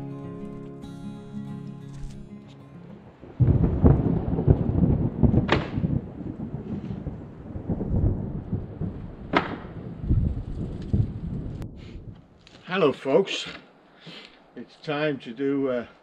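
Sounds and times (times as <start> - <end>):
wind buffeting microphone: 3.2 - 12.4.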